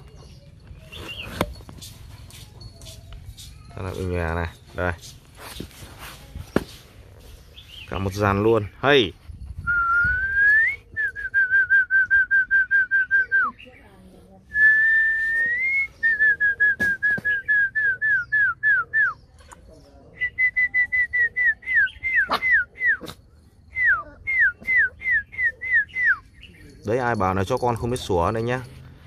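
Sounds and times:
person whistling: 9.6 - 13.5, 14.5 - 19.1, 20.2 - 23.1, 23.7 - 26.2
puppies yapping: 22.0 - 27.2.

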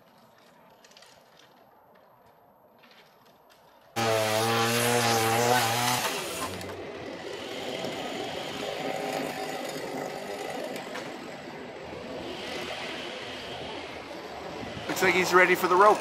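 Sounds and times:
chainsaw cutting wood: 4.0 - 16.0.

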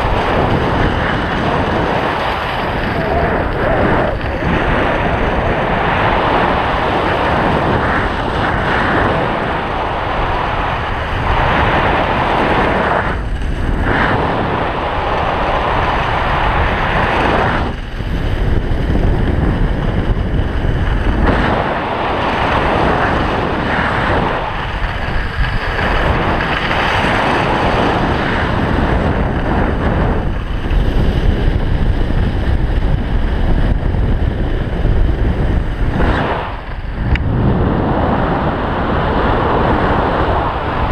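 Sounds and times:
skis scraping on packed snow: 0.0 - 32.7
wind rushing over microphone: 0.0 - 40.9.

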